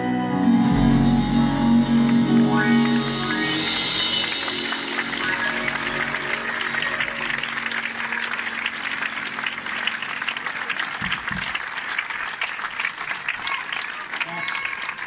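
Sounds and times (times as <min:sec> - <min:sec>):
music held notes: 0:00.0 - 0:11.2
audience applauding: 0:02.0 - 0:15.0.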